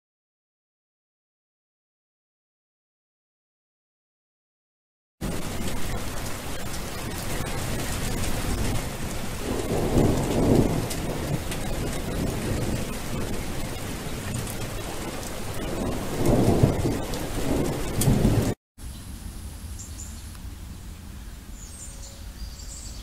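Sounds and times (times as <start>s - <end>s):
steady rain falling: 5.2s - 18.6s
thunder rolling: 5.2s - 21.3s.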